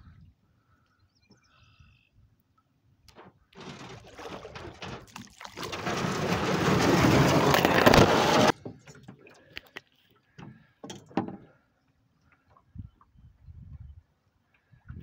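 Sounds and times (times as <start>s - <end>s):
canoe hull scraping over riverbed: 3.1s - 9.2s.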